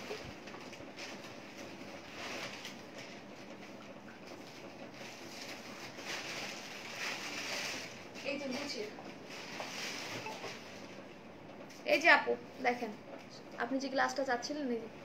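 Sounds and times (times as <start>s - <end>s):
clothes and packaging rustling: 0.0s - 11.0s.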